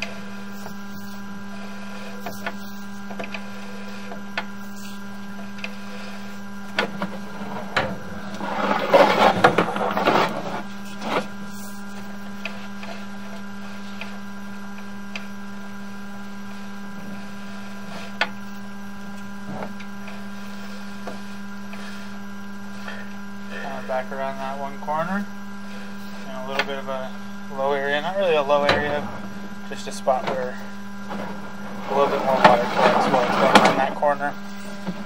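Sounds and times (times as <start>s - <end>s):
cable scraping and rattling: 0.0s - 14.2s, 27.6s - 35.0s
inspection camera rig humming: 0.0s - 35.0s.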